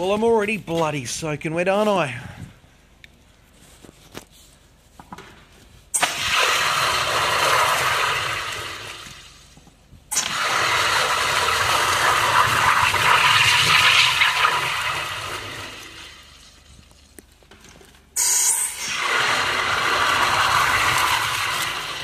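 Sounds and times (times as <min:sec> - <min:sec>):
water jet hissing in pipe: 0:06.0 - 0:09.4, 0:10.1 - 0:16.3, 0:18.2 - 0:22.0.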